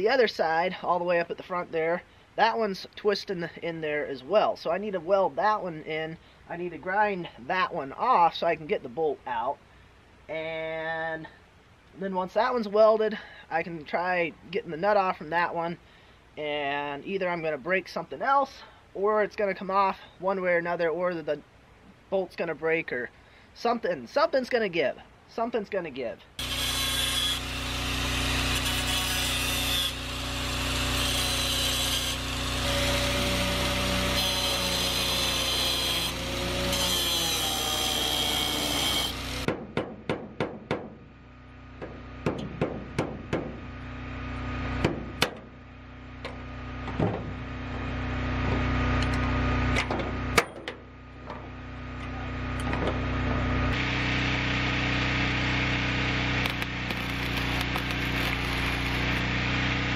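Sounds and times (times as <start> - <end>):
angle grinder grinding metal: 26.4 - 39.5, 56.2 - 59.7
steady low hum: 40.8 - 59.9.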